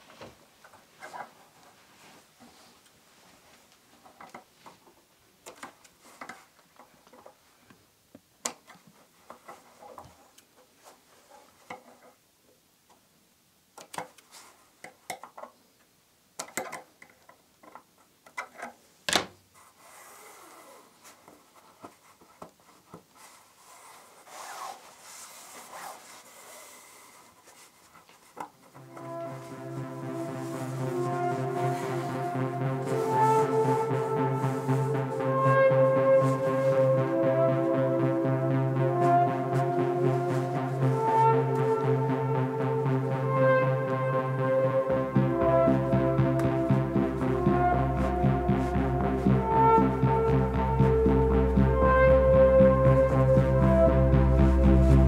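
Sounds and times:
rubbing or brushing: 0:19.6 - 0:35.6.

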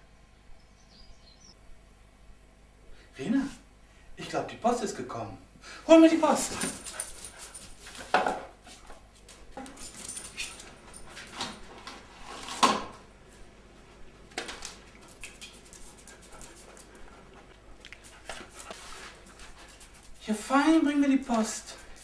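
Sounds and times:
dog clicking on tiled floor: 0:06.4 - 0:12.0, 0:14.3 - 0:20.2.

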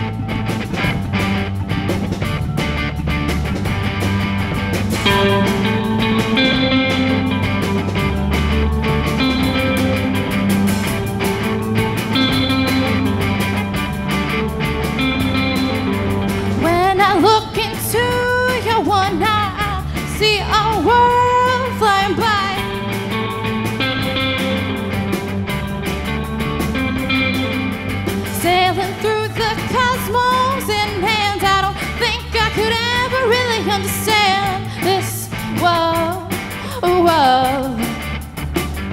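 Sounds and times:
live rock band playing: 0:00.0 - 0:38.9
lead vocals: 0:16.0 - 0:23.0, 0:28.3 - 0:38.2.

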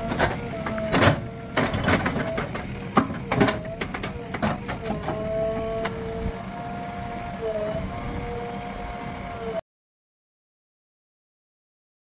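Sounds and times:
metal clanks and knocks: 0:00.0 - 0:06.2
backhoe loader whining: 0:00.0 - 0:09.6.

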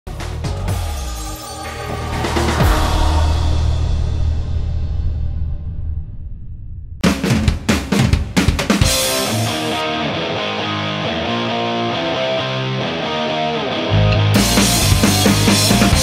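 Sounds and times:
drum hits: 0:01.7 - 0:05.6, 0:07.0 - 0:09.4
instrumental background music: 0:07.0 - 0:16.0.

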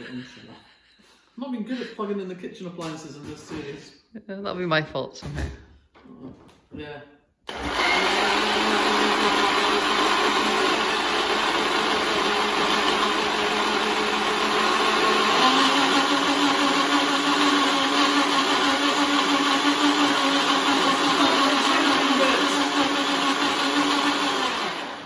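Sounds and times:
blender running: 0:07.5 - 0:25.0.

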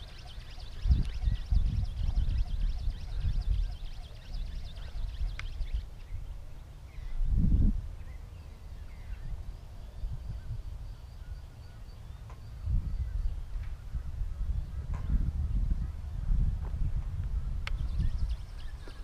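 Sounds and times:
faint bird chirps: 0:00.0 - 0:07.3
wind buffeting microphone: 0:00.0 - 0:19.0.

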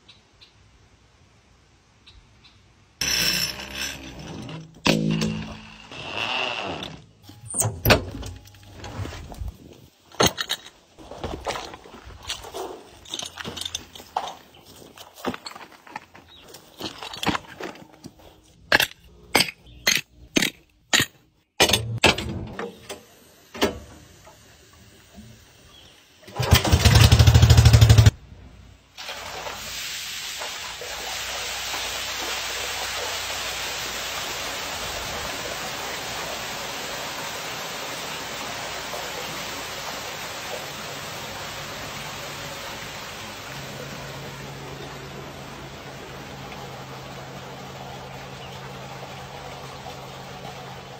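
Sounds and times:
footsteps on hose and grass: 0:11.0 - 0:18.6
water rushing into pool: 0:29.0 - 0:50.9.

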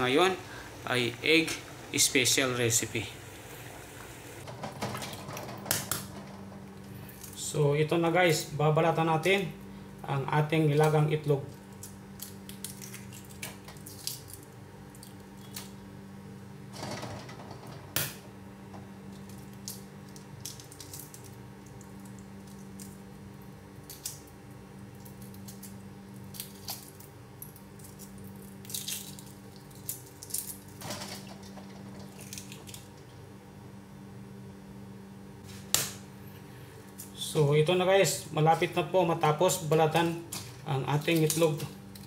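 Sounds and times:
eggshell cracking: 0:11.6 - 0:15.8, 0:19.3 - 0:22.9, 0:23.8 - 0:30.8, 0:31.9 - 0:33.0.

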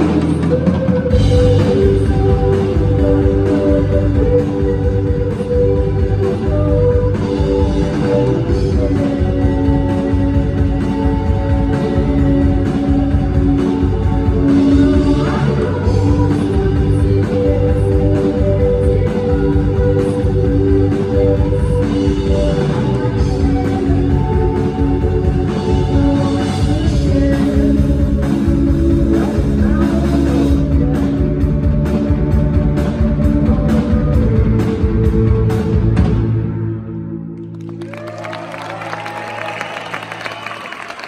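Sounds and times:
rock band playing loud: 0:00.0 - 0:36.9.

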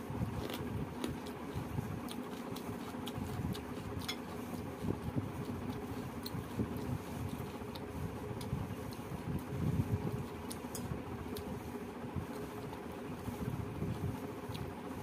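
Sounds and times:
fingers mixing rice: 0:00.0 - 0:15.0
mouth chewing: 0:00.3 - 0:09.2.

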